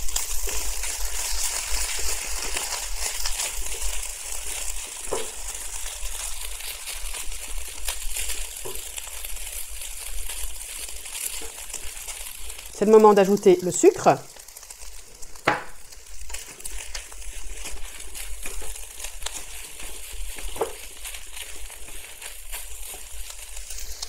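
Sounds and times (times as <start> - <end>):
fried rice sizzling in a wok: 0.0 - 24.0
spatula scraping and tapping: 5.0 - 5.8, 15.3 - 24.0.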